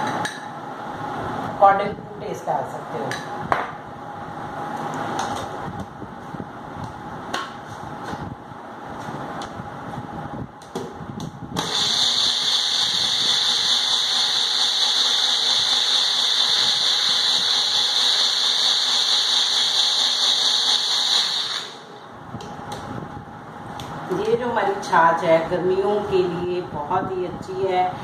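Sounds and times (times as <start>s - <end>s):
mixer grinder motor whining: 11.6s - 22.0s.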